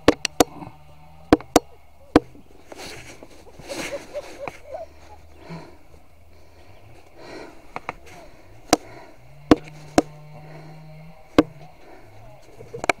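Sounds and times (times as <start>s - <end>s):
faint low hum: 0.0s - 13.0s
sharp knocks: 8.7s - 10.2s, 11.3s - 11.6s.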